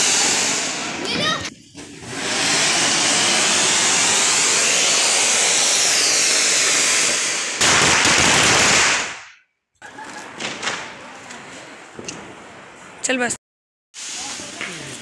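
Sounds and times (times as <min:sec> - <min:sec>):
fountain fireworks hissing: 0:00.0 - 0:09.0, 0:14.0 - 0:15.0.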